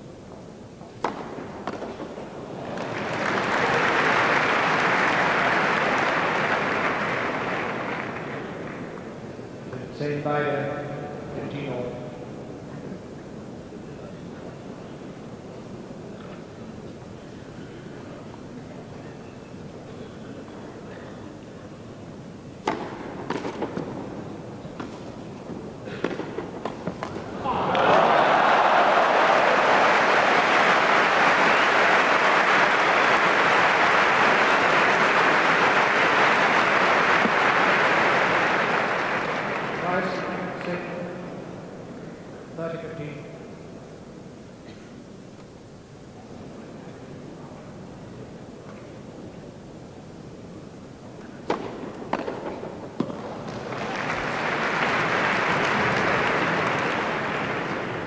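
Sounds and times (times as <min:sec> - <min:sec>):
tennis ball hits: 0:01.0 - 0:02.2, 0:22.6 - 0:24.0, 0:51.4 - 0:53.6
crowd applause: 0:01.0 - 0:09.4, 0:26.9 - 0:40.9, 0:53.1 - 0:58.0
crowd murmur: 0:23.7 - 0:42.6.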